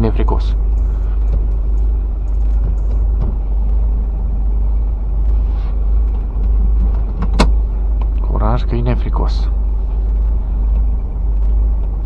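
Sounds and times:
diesel truck engine rumble: 0.0s - 12.0s
road noise: 0.0s - 12.0s.

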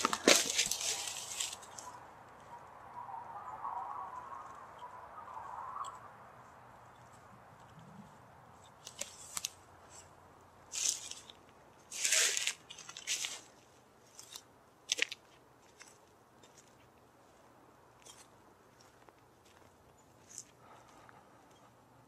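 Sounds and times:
footsteps crunching through dry leaves: 0.0s - 2.0s, 8.8s - 21.5s.

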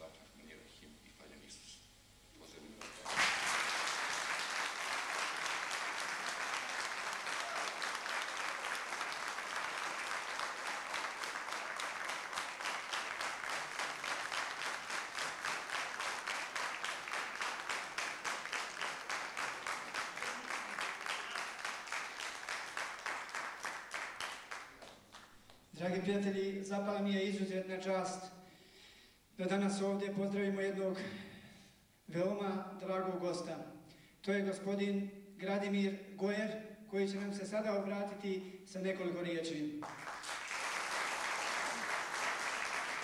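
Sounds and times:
audience applauding: 2.8s - 25.5s, 39.8s - 43.0s
rhythmic clapping in unison: 2.8s - 25.8s, 39.8s - 43.0s.

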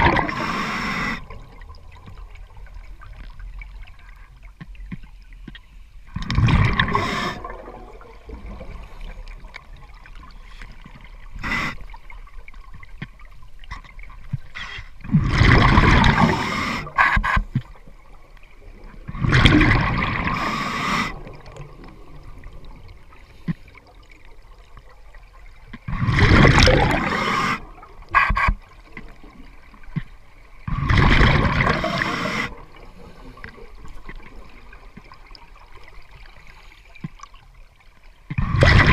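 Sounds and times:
bubbles bursting underwater: 0.0s - 0.4s, 6.2s - 9.0s, 15.1s - 16.5s, 19.1s - 20.4s, 25.9s - 27.9s, 30.7s - 32.2s, 38.4s - 38.9s.

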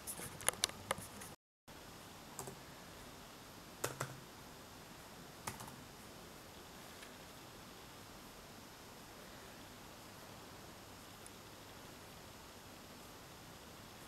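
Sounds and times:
laptop keyboard taps: 3.8s - 4.2s.

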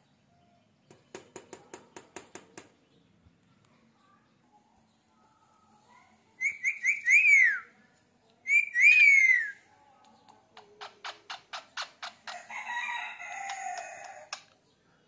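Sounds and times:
parakeet rapid clicks: 13.4s - 14.6s.

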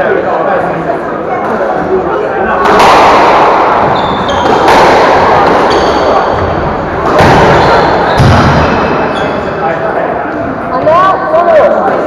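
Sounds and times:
squash ball cracking off walls: 2.6s - 8.8s
shoes squeaking on wooden floor: 3.8s - 4.7s, 5.6s - 8.4s.

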